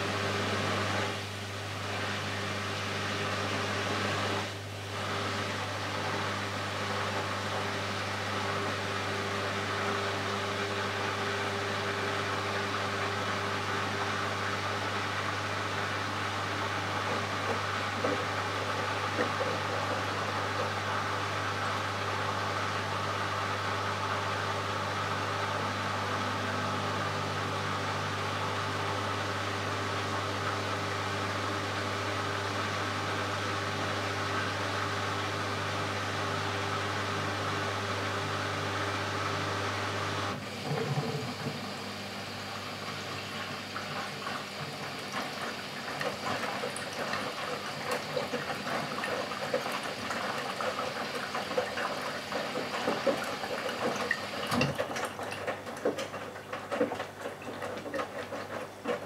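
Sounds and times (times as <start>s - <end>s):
washing machine hum: 0.0s - 59.0s
water sloshing in drum: 16.8s - 21.6s, 42.9s - 59.0s.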